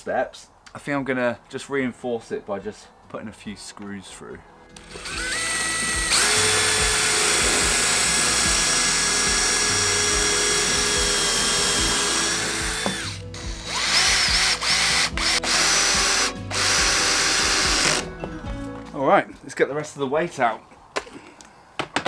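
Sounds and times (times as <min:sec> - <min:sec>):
drill boring into wood: 0:04.8 - 0:18.1
drill-driver driving a screw: 0:04.8 - 0:18.1.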